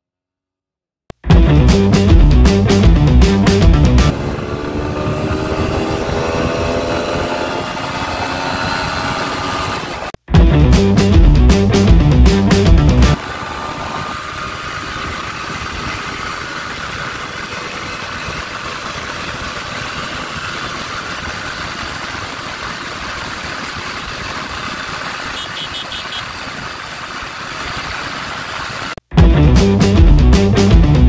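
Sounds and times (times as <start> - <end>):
motorcycle engine accelerating: 1.3 - 31.0
wind rush: 13.2 - 21.5.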